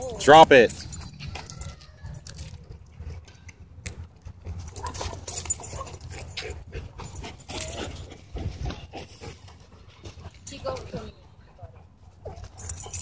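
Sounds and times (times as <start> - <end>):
dogs panting: 4.2 - 13.0
dogs scuffling: 4.3 - 11.1.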